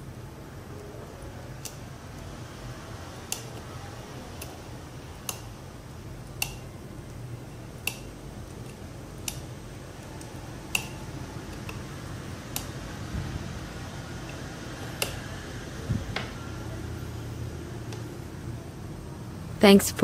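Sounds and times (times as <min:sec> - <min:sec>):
small switch clicks: 0:03.3 - 0:03.6, 0:05.2 - 0:05.5, 0:06.2 - 0:06.7, 0:07.8 - 0:09.5, 0:10.2 - 0:11.8, 0:12.5 - 0:12.8, 0:14.2 - 0:15.2.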